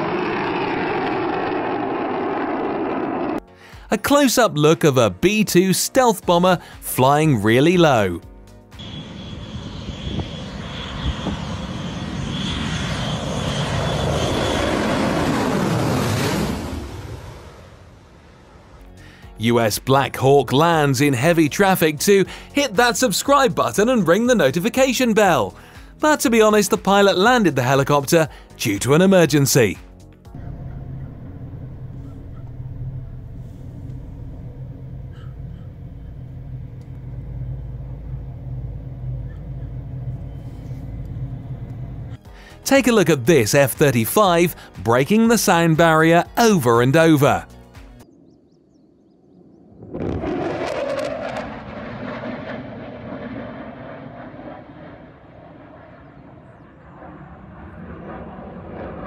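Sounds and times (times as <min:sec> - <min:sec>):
jet engine roar in fly-by: 0:00.0 - 0:03.8, 0:08.7 - 0:19.3, 0:30.3 - 0:42.6, 0:47.6 - 0:59.0
helicopter rotor rumble: 0:00.0 - 0:04.4, 0:08.2 - 0:29.1, 0:29.9 - 0:59.0
road traffic: 0:08.6 - 0:15.5, 0:30.3 - 0:42.6.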